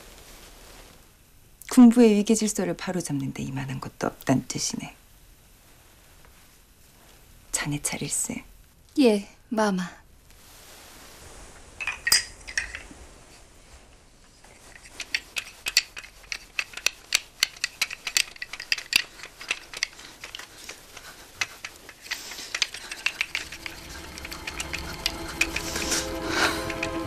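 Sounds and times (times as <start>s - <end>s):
game pieces clicking: 14.8s - 27.0s.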